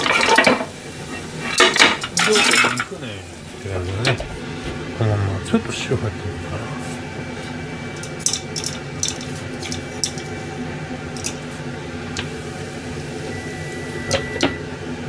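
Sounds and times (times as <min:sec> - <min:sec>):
steady low hum: 0:00.5 - 0:15.0
salt shaker rattling: 0:08.0 - 0:10.3, 0:11.2 - 0:11.4.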